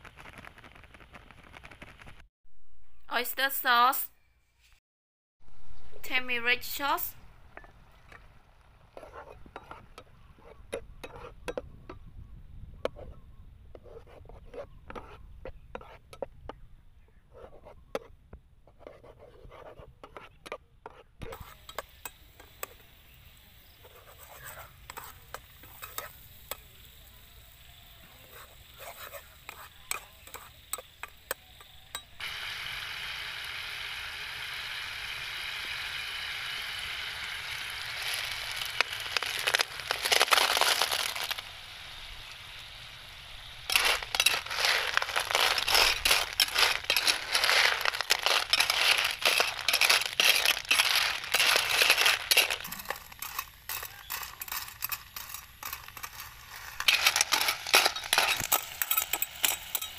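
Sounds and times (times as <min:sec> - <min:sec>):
sauce sizzling: 0:28.5 - 0:59.9
clam shells clattering: 0:37.9 - 0:41.4, 0:43.7 - 0:59.9
metal spatula scraping frying pan: 0:43.7 - 0:59.9.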